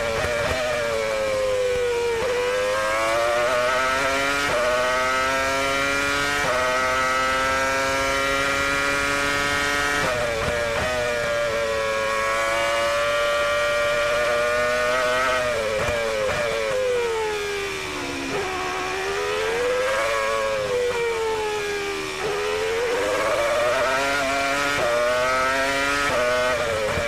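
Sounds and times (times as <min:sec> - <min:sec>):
racing car engine at full throttle: 0:00.0 - 0:27.0.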